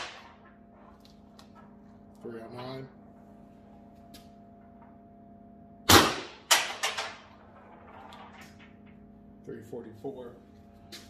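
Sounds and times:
gun shot pop: 5.9 - 7.1.

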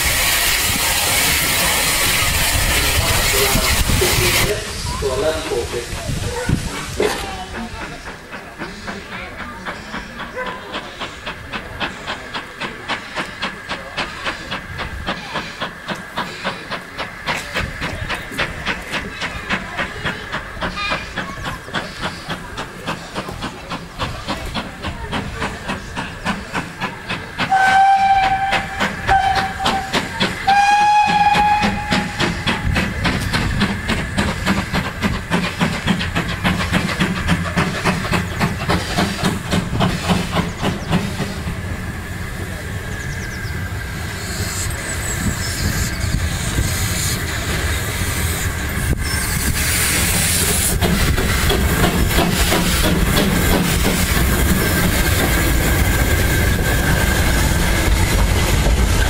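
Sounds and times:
steam locomotive chuffing: 0.0 - 59.0
steam whistle blasts: 27.5 - 32.4.

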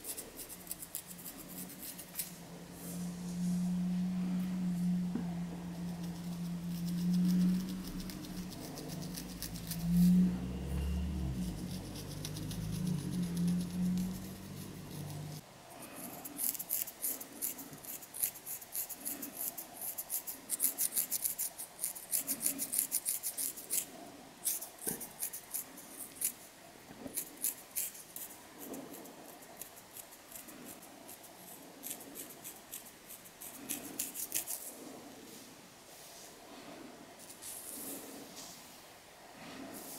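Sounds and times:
fingernails scratching scalp: 0.0 - 3.0, 5.7 - 10.2, 11.2 - 15.4, 16.0 - 26.4, 27.1 - 34.7.

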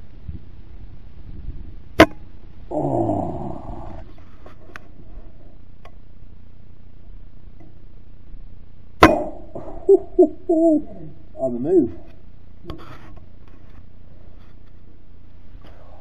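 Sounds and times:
air rifle shot: 9.0 - 9.5.

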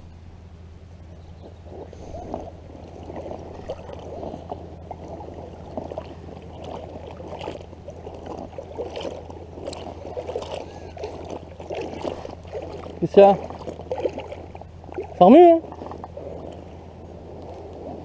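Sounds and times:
water sloshing and gurgling: 0.0 - 18.0
small water splashes: 1.4 - 18.0.

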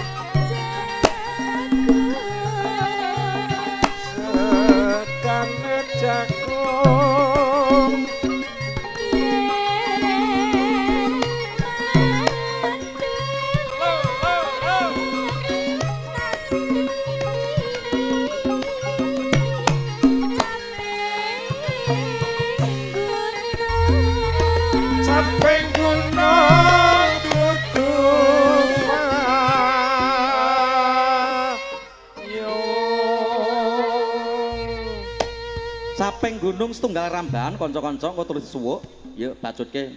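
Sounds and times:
hand drum pattern: 0.0 - 21.0, 23.6 - 29.9
gamelan instruments: 0.0 - 30.2
ringing metallophone tones: 23.7 - 29.5
ornamented melody line: 23.7 - 30.0.

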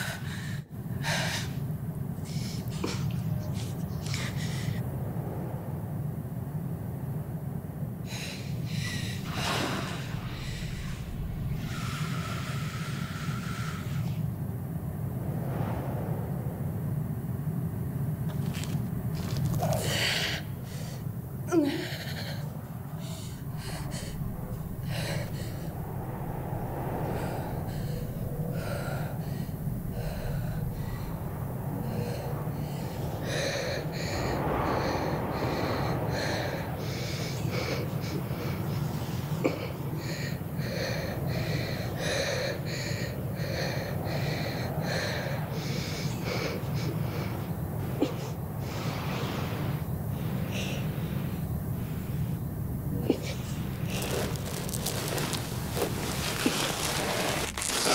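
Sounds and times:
steady low drone: 0.0 - 57.9.

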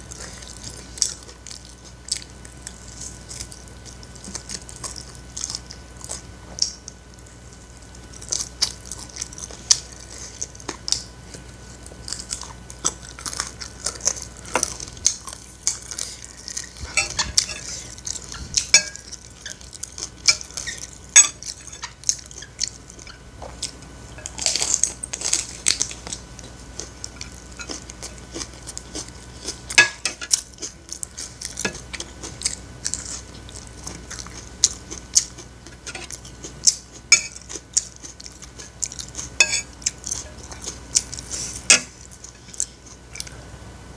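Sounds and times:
close-up chewing: 0.0 - 43.5
spoon scraping ceramic plate: 16.8 - 19.6.

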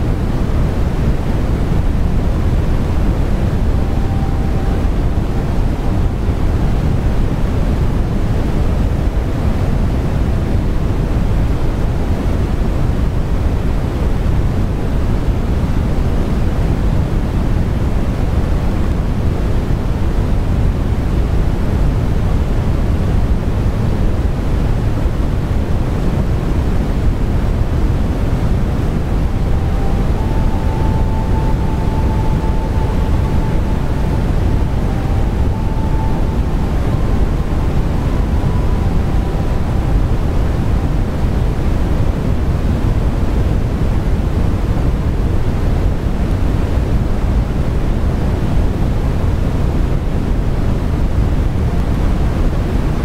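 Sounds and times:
steady rushing noise: 0.0 - 53.0
faint thin tone: 1.5 - 8.6, 27.5 - 43.6.

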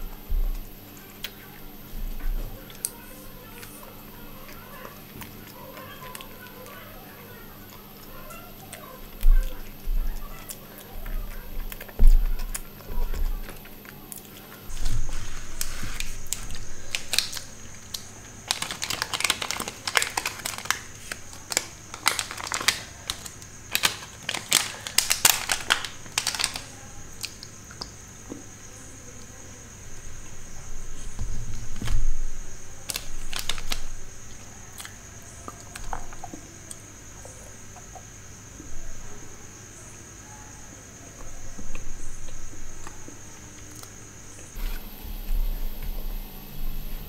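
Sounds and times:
plastic wrapper crinkling: 14.7 - 27.5, 32.8 - 34.0.

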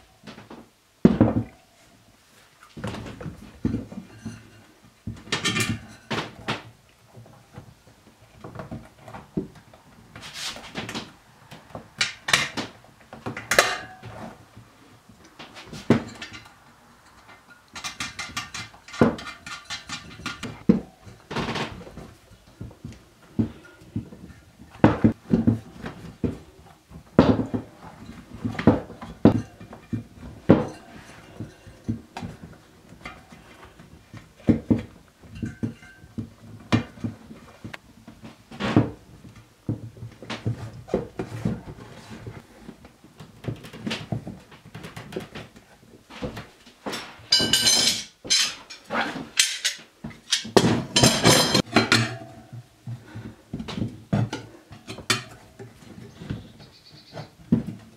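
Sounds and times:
tyre levers clinking on metal rim: 47.0 - 52.6.

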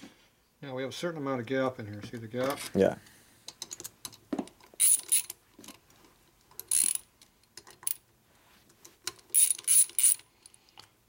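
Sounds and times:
hand ratchet clicking: 4.8 - 5.4, 6.5 - 7.0, 9.1 - 10.6.

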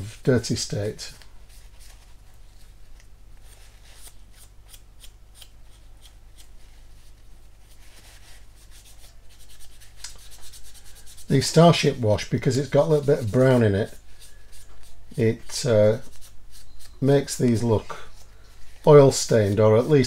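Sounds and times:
tissue wiping plastic: 5.6 - 20.0.

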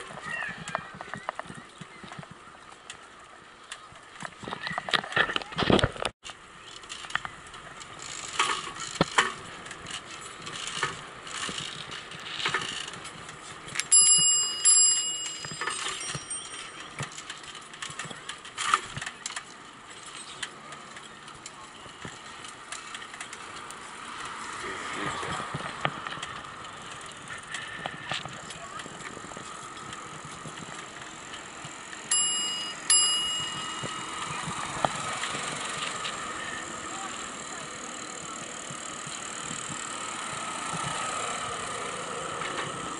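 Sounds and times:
bicycle rattling over pavement: 0.0 - 42.9
bicycle bell ringing: 13.9 - 17.2, 32.0 - 35.0.

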